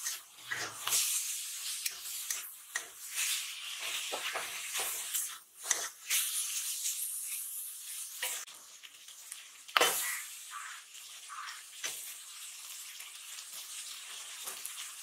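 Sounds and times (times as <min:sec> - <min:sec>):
metal spatula scraping pan: 0:00.0 - 0:07.5
frying hiss: 0:00.0 - 0:15.0.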